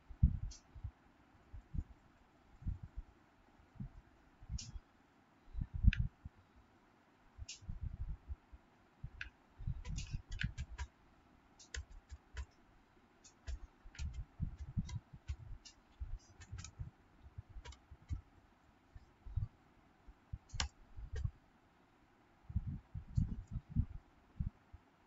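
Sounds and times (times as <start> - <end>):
keyboard typing clicks: 9.1 - 10.9, 11.6 - 12.6, 13.2 - 16.9, 17.6 - 18.3, 20.4 - 21.3.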